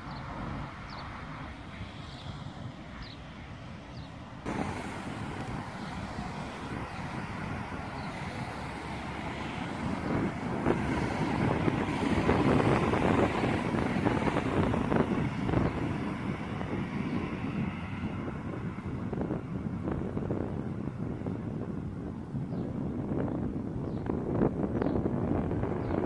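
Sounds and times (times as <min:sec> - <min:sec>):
wind buffeting microphone: 0:00.0 - 0:26.0
leaves rustling: 0:04.5 - 0:08.9.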